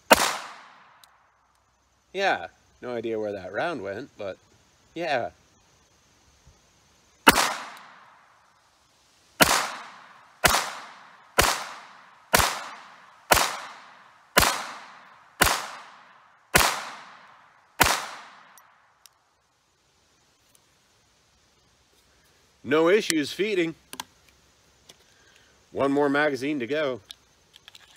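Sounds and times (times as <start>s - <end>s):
pistol shots with echo: 0.1s - 0.8s, 7.3s - 8.0s, 9.4s - 18.5s.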